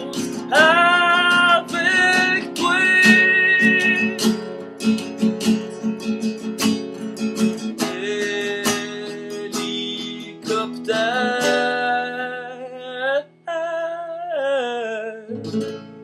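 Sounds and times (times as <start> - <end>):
man singing: 0.0 - 4.6, 7.6 - 15.6
acoustic guitar strumming: 0.0 - 13.9, 15.3 - 16.0.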